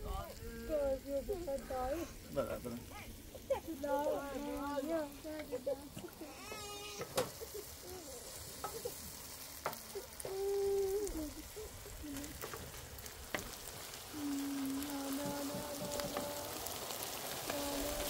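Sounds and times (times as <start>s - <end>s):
onions sizzling in a frying pan: 0.0s - 18.0s
wooden spoon tapping a pan: 6.5s - 7.4s, 9.6s - 9.9s, 13.3s - 13.6s, 14.8s - 18.0s.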